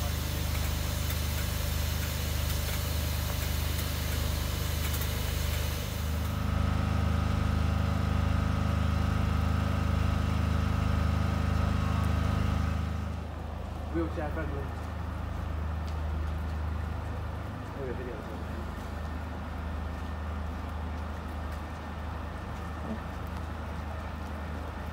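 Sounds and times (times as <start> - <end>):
steam hissing: 0.0 - 6.4
low mechanical hum: 0.0 - 14.0.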